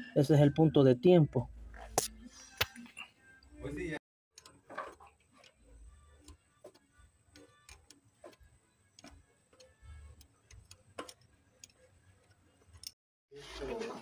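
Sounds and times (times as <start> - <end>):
metal parts clicking and tapping: 4.4 - 13.0.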